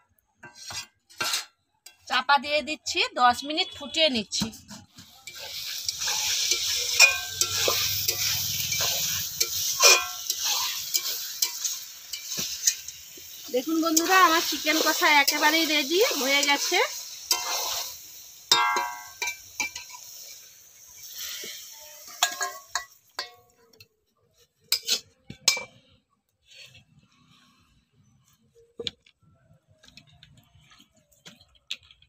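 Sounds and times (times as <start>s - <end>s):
metal spatula scraping pot: 0.4s - 2.1s, 4.5s - 28.1s
curry sizzling: 4.8s - 25.7s
ringing metal clink: 5.9s - 9.0s.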